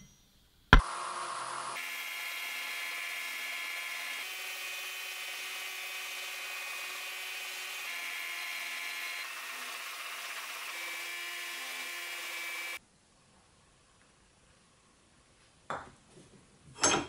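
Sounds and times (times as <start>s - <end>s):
belt sander whine: 0.8s - 12.8s
metal grinding on sanding belt: 1.8s - 12.8s.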